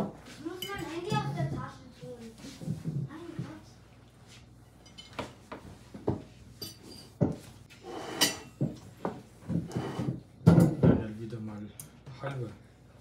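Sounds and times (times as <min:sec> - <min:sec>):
tableware clinking: 0:04.8 - 0:05.3, 0:06.6 - 0:08.9
knife and fork scraping on plate: 0:06.6 - 0:08.6.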